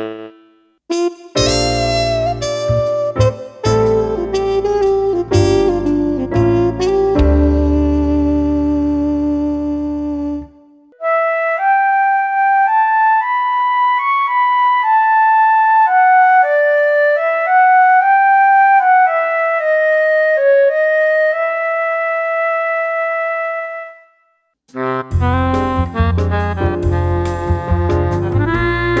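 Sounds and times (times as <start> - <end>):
synthesized baritone sax notes: 0.0 - 11.9, 24.8 - 29.0
synthesized flute melody: 0.0 - 29.0.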